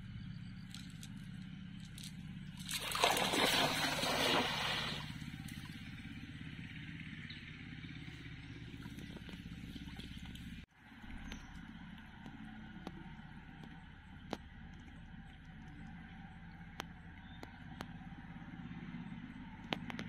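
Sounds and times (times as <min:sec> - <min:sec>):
net splashing onto water: 0:02.0 - 0:05.7.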